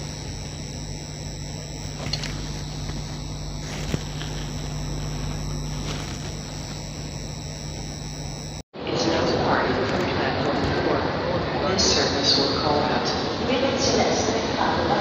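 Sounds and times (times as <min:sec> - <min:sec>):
faint high whine: 0:00.0 - 0:08.6.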